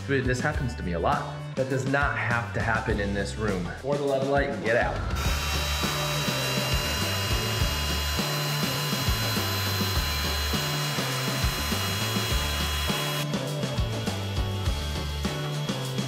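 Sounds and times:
background music with bass line: 0:00.0 - 0:16.0
drill paddle mixer churning: 0:05.2 - 0:16.0.

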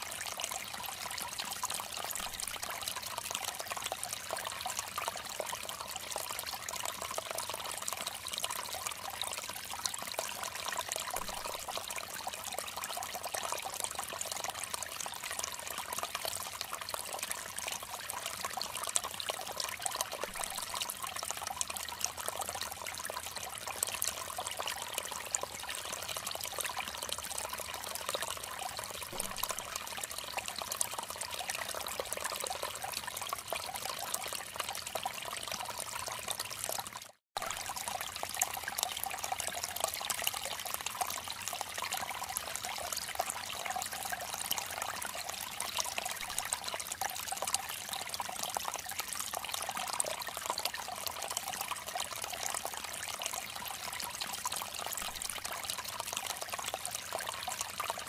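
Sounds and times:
stream splashing over rocks: 0:08.7 - 0:14.3, 0:19.0 - 0:48.6.

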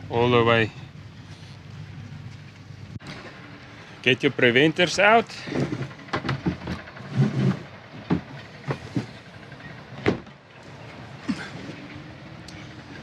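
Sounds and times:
gear knocking and rustling: 0:04.6 - 0:13.0.

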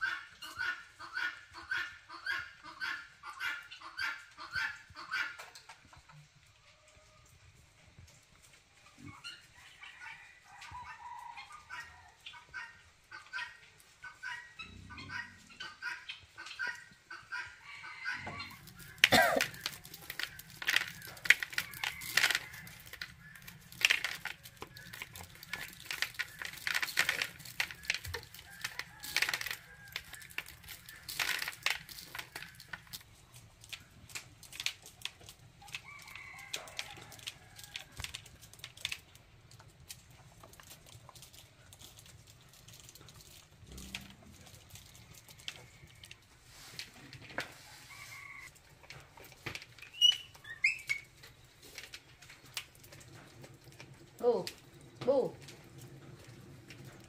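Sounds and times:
chickens clucking: 0:00.0 - 0:07.4, 0:08.1 - 0:38.1
corn kernels rattling into bucket: 0:18.4 - 0:57.0.

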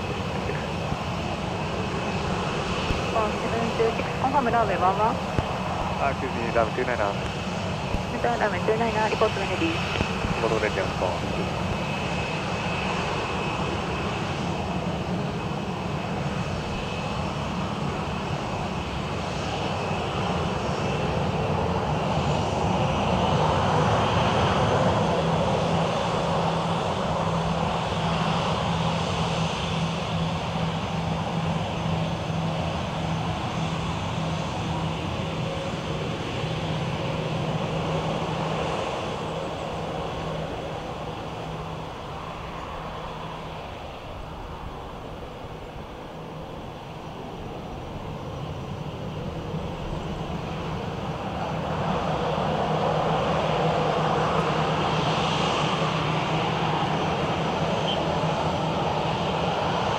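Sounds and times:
jet engines rushing and whining: 0:00.0 - 0:59.9.

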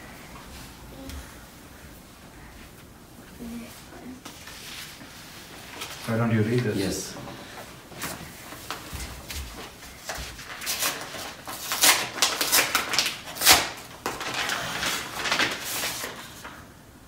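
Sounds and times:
paper card rustling: 0:08.0 - 0:16.6.

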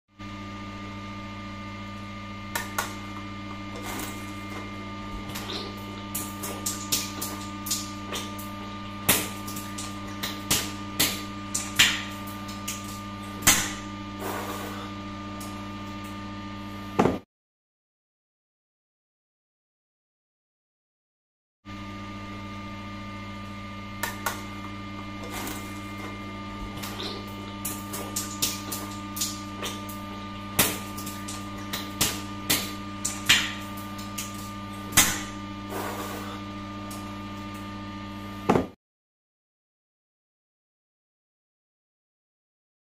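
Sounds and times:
steady hum: 0:00.2 - 0:17.2, 0:21.7 - 0:38.8.

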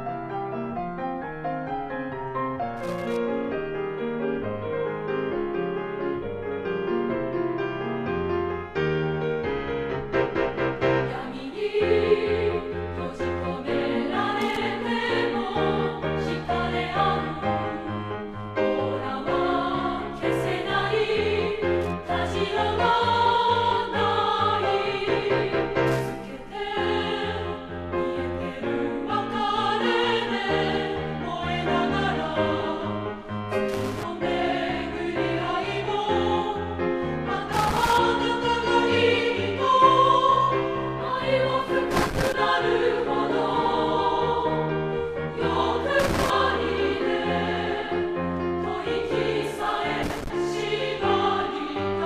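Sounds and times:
women's chorus singing: 0:11.0 - 0:52.0.

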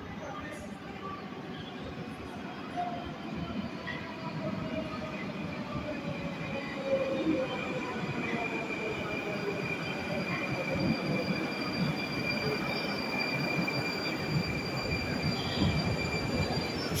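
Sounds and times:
metro train rumble: 0:00.0 - 0:17.0
high-pitched train whine: 0:04.4 - 0:17.0.

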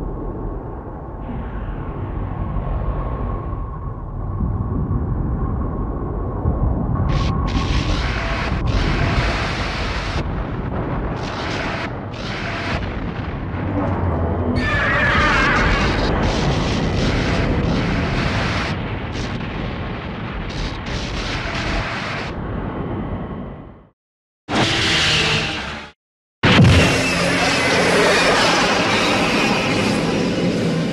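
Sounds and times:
rumbling explosion sound effect: 0:00.0 - 0:23.9, 0:26.4 - 0:28.9
hissing crackle: 0:07.0 - 0:13.5, 0:15.4 - 0:22.6.

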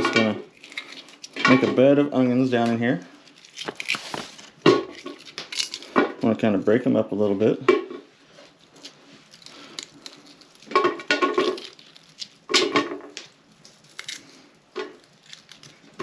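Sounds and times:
onion layers clicking and crackling: 0:00.0 - 0:07.4, 0:08.3 - 0:16.0.

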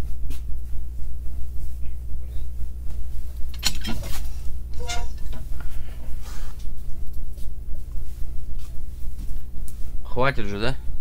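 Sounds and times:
stove door metal clatter: 0:03.5 - 0:05.4
short ringing clank: 0:03.6 - 0:04.2.

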